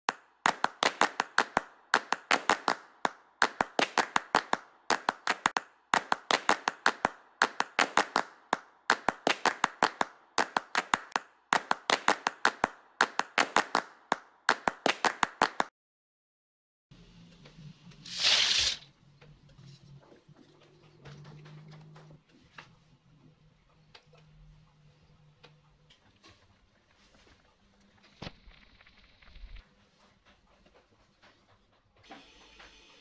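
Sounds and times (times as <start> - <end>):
rhythmic hand clapping: 0.1 - 15.7.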